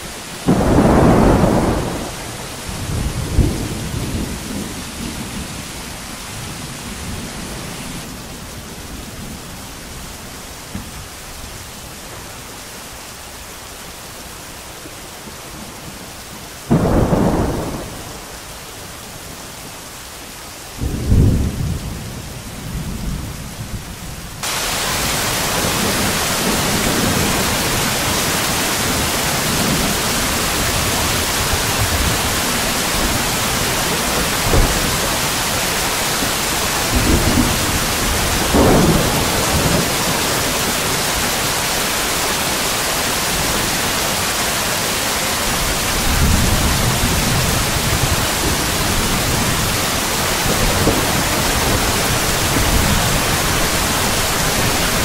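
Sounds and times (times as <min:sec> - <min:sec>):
rain: 0:00.0 - 0:55.0
thunderclap: 0:00.4 - 0:05.6, 0:16.7 - 0:18.3, 0:30.7 - 0:35.5, 0:36.3 - 0:41.3, 0:45.6 - 0:53.7
thunder rumbling: 0:00.4 - 0:09.5, 0:16.7 - 0:18.4, 0:20.8 - 0:42.6, 0:45.4 - 0:55.0.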